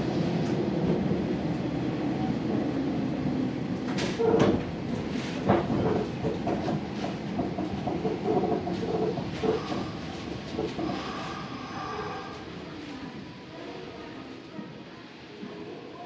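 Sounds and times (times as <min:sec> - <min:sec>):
train wheels rumbling on track: 0:00.0 - 0:13.3
wheels clacking over rail joints: 0:03.9 - 0:11.3.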